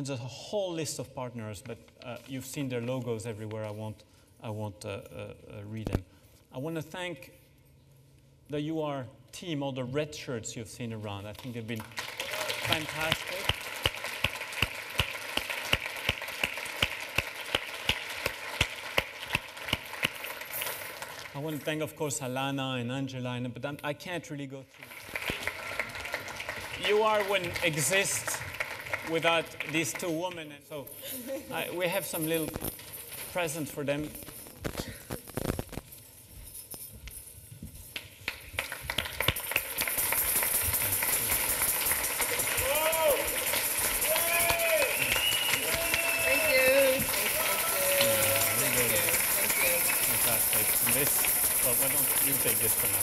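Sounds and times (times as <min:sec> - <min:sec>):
loud close hand claps: 0:11.8 - 0:21.3, 0:24.8 - 0:30.1, 0:38.0 - 0:53.0
audience applauding: 0:11.8 - 0:21.6, 0:24.8 - 0:30.3, 0:38.3 - 0:53.0.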